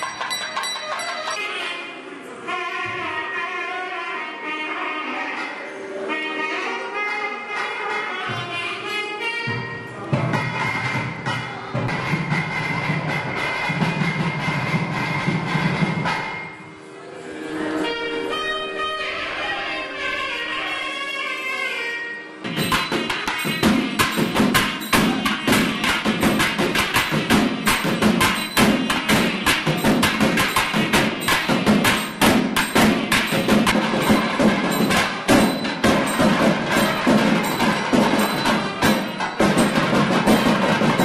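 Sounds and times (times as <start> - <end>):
barrel drums beaten fast: 22.5 - 41.0.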